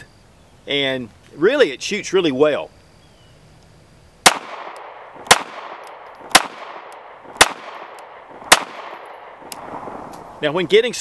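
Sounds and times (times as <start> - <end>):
pistol shots: 4.2 - 9.8.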